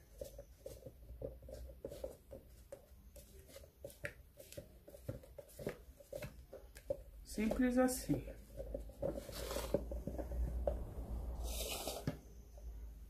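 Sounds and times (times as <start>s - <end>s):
spatula scraping plastic jar: 7.3s - 12.5s.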